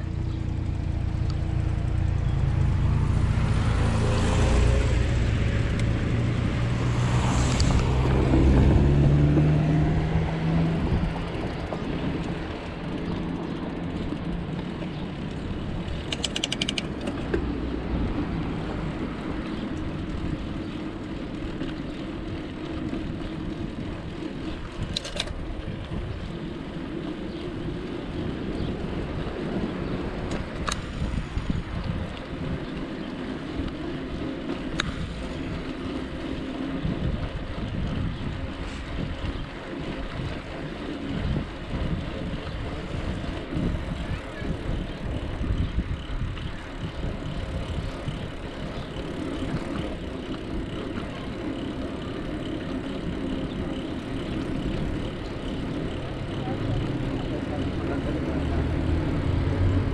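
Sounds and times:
bicycle riding rumble: 0.0 - 59.9
motor vehicle passing: 0.0 - 59.9
quick sharp ticks: 16.0 - 17.2.

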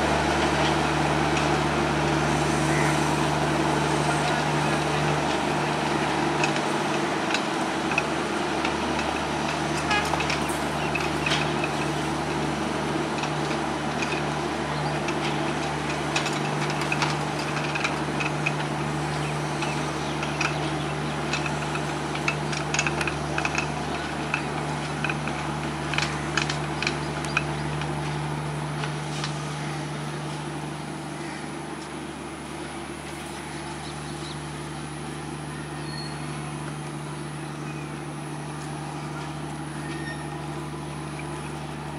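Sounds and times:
diesel train engine drone: 0.0 - 41.9
train wheels clicking over rail joints: 0.4 - 31.0.

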